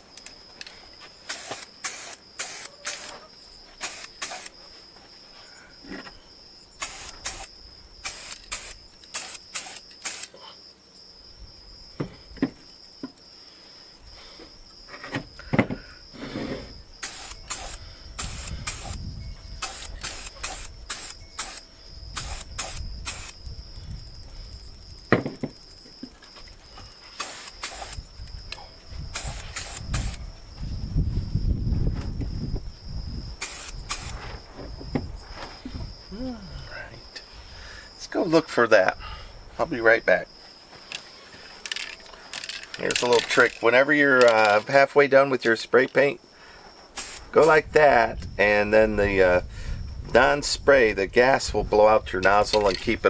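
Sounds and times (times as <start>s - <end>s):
high insect drone: 0.0s - 53.0s
spray paint can spraying: 1.2s - 3.2s, 3.8s - 4.5s, 6.8s - 10.3s, 17.0s - 19.0s, 19.6s - 21.6s, 22.2s - 23.4s, 27.1s - 28.0s, 29.2s - 30.2s, 33.4s - 34.2s, 47.0s - 47.3s.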